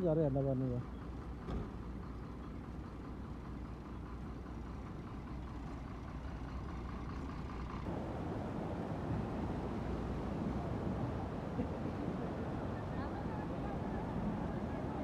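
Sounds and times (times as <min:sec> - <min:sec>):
truck engine rumbling: 0:00.0 - 0:15.0
rushing floodwater: 0:07.9 - 0:15.0.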